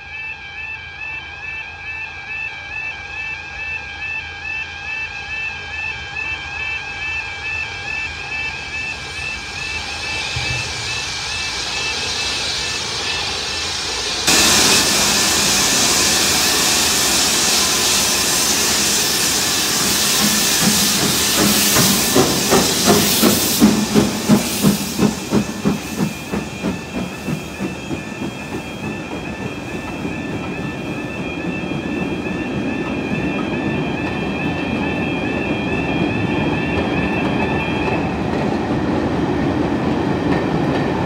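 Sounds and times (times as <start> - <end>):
two-tone crossing alarm: 0.0 - 38.5
steam hissing: 8.0 - 38.1
train wheels clicking over rail joints: 9.2 - 41.0.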